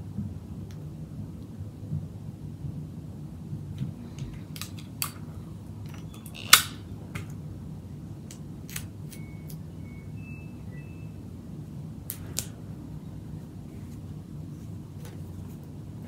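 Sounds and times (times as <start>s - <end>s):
low steady hum: 0.0s - 16.0s
scissors clicking and snipping: 8.3s - 8.9s.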